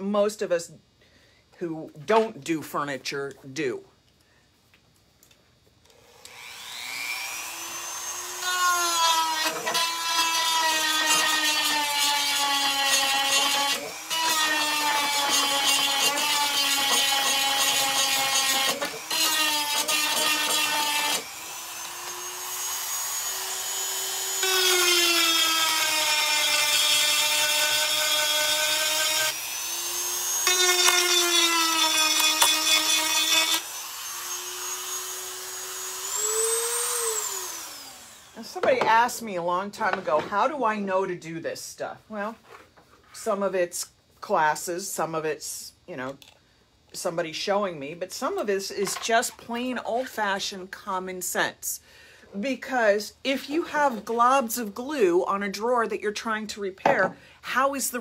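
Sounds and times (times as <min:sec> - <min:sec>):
rotary tool high whine grinding: 0:05.9 - 0:38.7.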